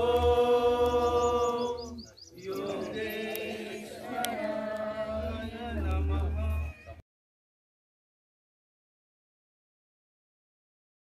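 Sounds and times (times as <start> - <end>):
person singing devotional song: 0.0 - 6.9.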